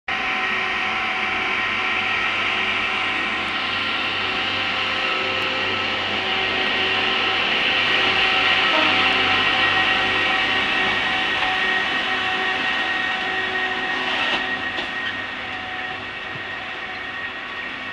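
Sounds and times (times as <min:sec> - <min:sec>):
diesel track machine passing: 0:00.1 - 0:17.9.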